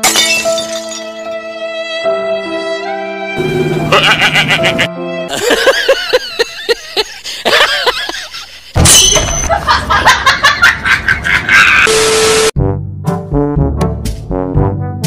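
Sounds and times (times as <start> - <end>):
man laughing and talking: 3.9 - 8.8.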